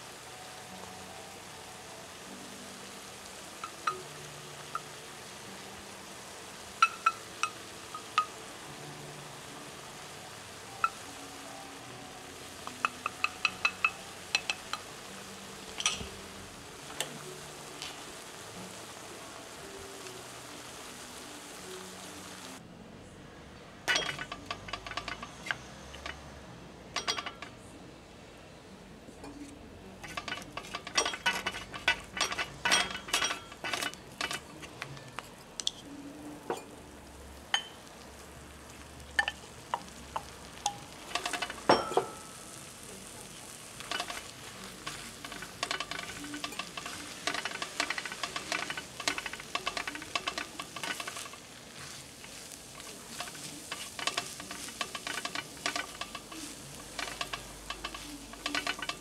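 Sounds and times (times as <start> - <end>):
steady sizzle: 0.0 - 22.6, 23.2 - 59.0
spatula scraping on griddle: 12.3 - 19.0, 23.9 - 26.4, 29.9 - 36.7, 38.7 - 59.0.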